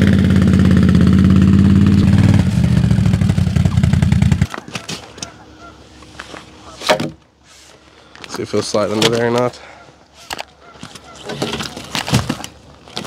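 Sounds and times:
atv engine running: 0.0s - 4.6s.

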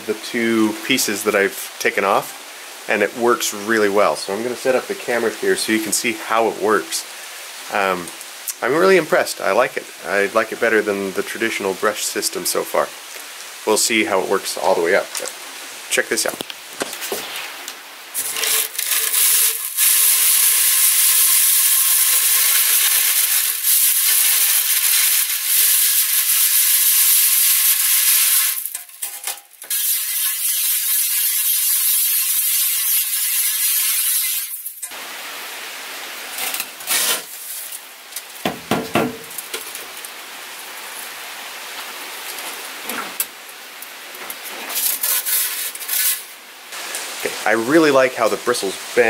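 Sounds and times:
nylon line scouring stove pipe: 13.7s - 35.0s, 36.4s - 37.8s, 44.2s - 49.0s
knock: 38.4s - 39.3s
rubbing and scraping: 44.2s - 46.3s.

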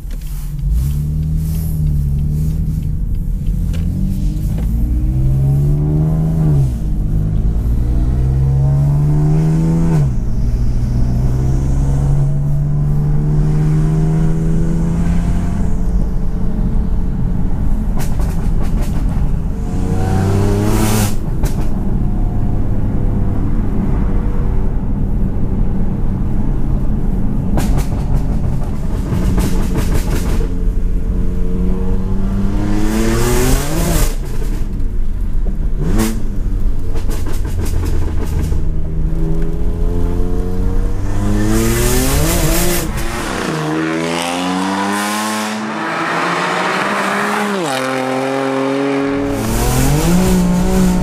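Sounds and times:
exhaust cracks: 0.0s - 5.1s, 33.4s - 43.8s
car engine accelerating hard: 0.2s - 16.1s, 18.5s - 24.0s, 35.6s - 51.0s.

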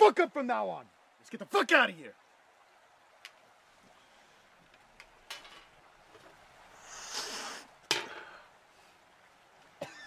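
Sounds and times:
short hiss: 6.8s - 7.7s.

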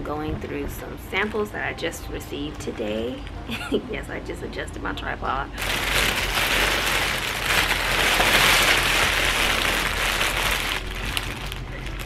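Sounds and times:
plastic packaging crinkling: 5.6s - 12.0s.

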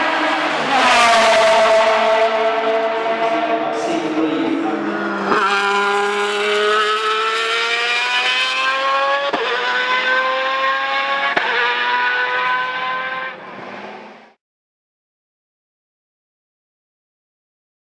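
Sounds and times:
race car engine accelerating: 0.0s - 14.4s.

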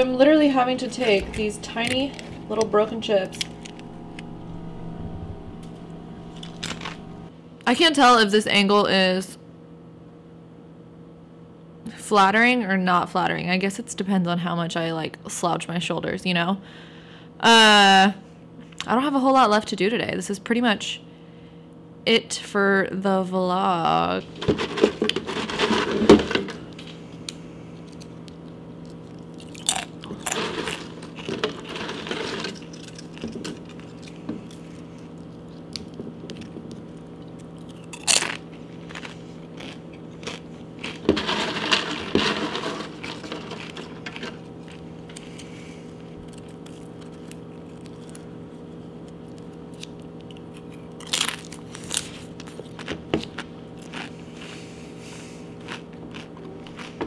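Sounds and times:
steady low hum: 0.0s - 57.0s
chips being crunched: 6.4s - 7.1s, 26.7s - 45.5s, 46.2s - 48.3s, 49.0s - 54.1s.

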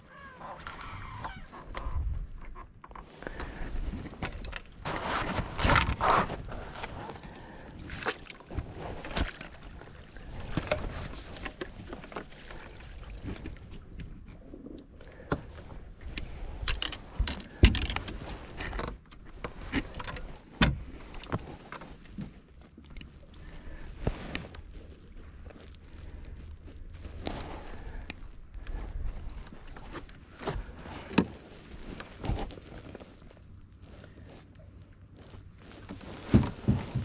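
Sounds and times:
fishing gear knocking and rattling: 1.8s - 4.9s, 9.0s - 23.2s.

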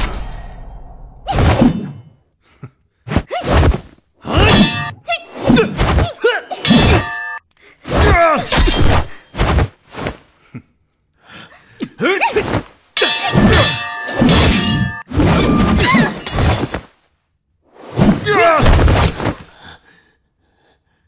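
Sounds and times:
fighters grunting and shouting: 4.2s - 7.2s, 7.8s - 9.1s, 11.8s - 14.7s, 18.1s - 19.6s
sword blades clashing: 4.3s - 7.4s, 13.0s - 16.8s.

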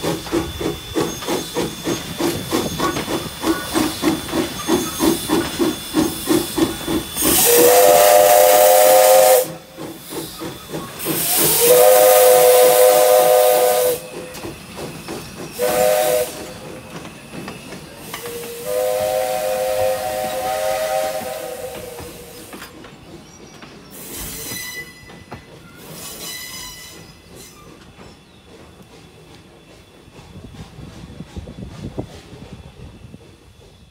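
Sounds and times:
steam locomotive exhaust chuffs: 0.0s - 33.9s
steam whistle blasts: 5.9s - 10.0s, 11.0s - 14.3s, 15.5s - 16.8s, 18.0s - 22.6s.

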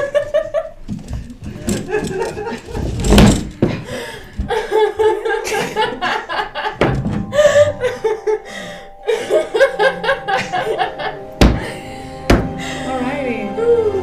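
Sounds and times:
women laughing: 0.0s - 0.8s, 1.5s - 3.0s, 3.7s - 11.8s
faint music: 4.5s - 14.0s
sharp thumps: 11.4s - 12.6s.

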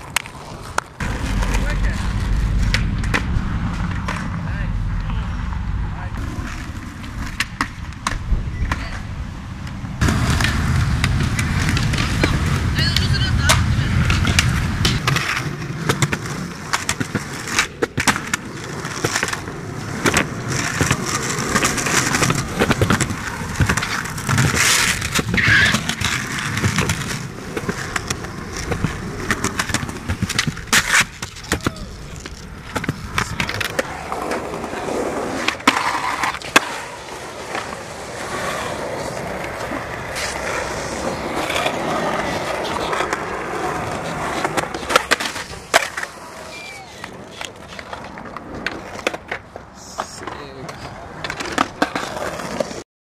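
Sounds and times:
skateboard wheels rolling on concrete: 0.0s - 52.8s
skateboard clacks and knocks: 10.0s - 52.8s.

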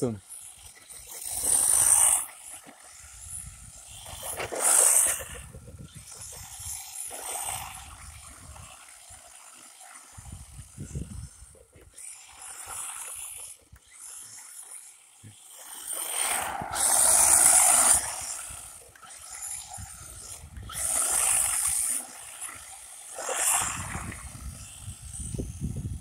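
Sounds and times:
toy truck tyre and drivetrain noise: 0.0s - 26.0s
wind rumble on microphone: 3.1s - 3.8s, 5.1s - 6.8s, 10.2s - 11.6s, 16.3s - 18.8s, 19.4s - 21.8s, 23.6s - 26.0s.

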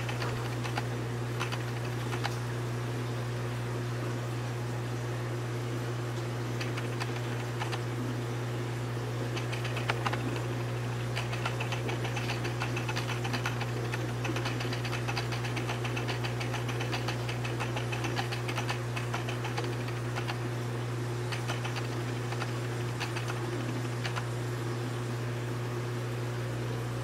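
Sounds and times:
light clicks and ticks: 0.0s - 2.4s, 6.6s - 7.8s, 9.4s - 10.6s, 11.2s - 20.4s, 21.3s - 24.3s
low mechanical hum: 0.0s - 27.0s.

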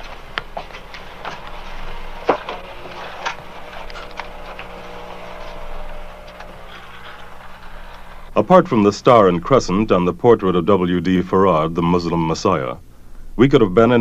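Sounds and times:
footsteps on hard floor: 0.0s - 8.3s
old film soundtrack hum: 0.0s - 14.0s.

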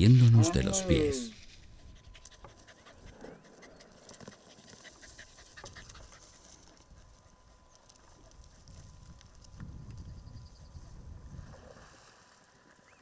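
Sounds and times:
dog panting: 1.8s - 7.4s
light clicks and crackles: 5.6s - 10.1s.

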